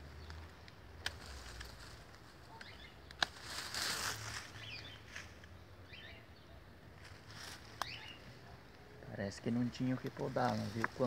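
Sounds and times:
rustle of leaves and twigs: 0:00.0 - 0:06.1, 0:06.8 - 0:11.0
pruning shears snipping: 0:00.3 - 0:03.7
faint bird chirps: 0:04.4 - 0:06.8, 0:07.6 - 0:09.1.

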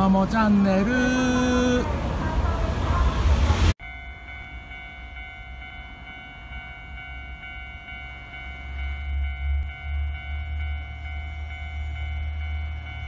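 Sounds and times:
level crossing warning bell ringing: 0:03.8 - 0:13.0.

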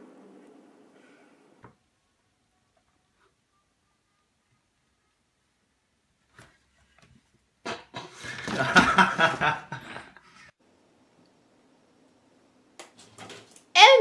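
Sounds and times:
person laughing: 0:08.0 - 0:10.2.

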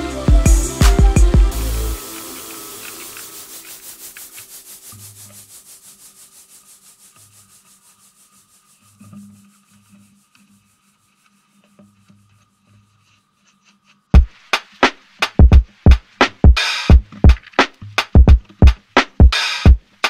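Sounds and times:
blower fan rhythmic rubbing: 0:00.0 - 0:13.7.

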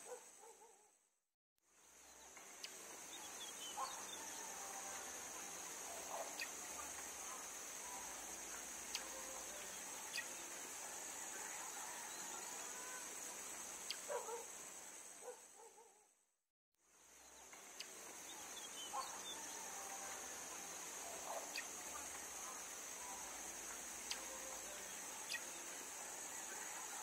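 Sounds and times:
faint bird chirps: 0:01.9 - 0:13.0, 0:17.2 - 0:27.0
high-pitched insect drone: 0:02.3 - 0:14.7, 0:17.3 - 0:27.0.

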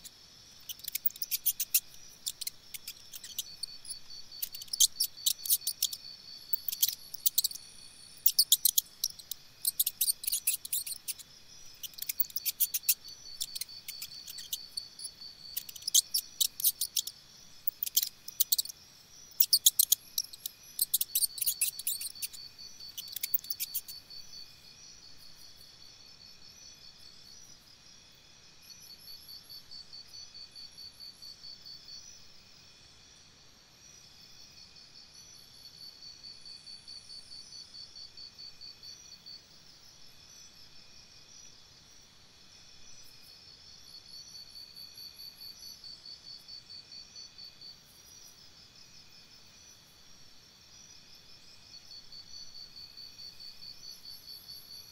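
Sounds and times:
insects chirping in trills: 0:00.0 - 0:54.9.

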